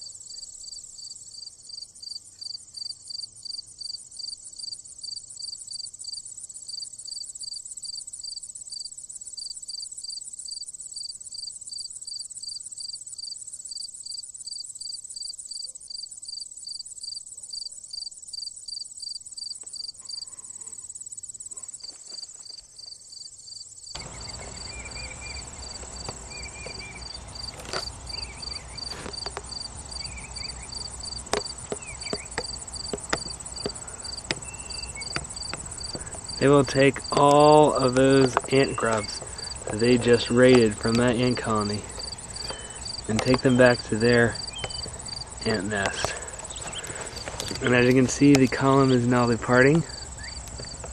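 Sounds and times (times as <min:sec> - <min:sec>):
crickets chirping: 0:00.0 - 0:50.9
camera handling rustling and knocks: 0:25.7 - 0:30.1, 0:31.2 - 0:36.3, 0:46.0 - 0:47.7.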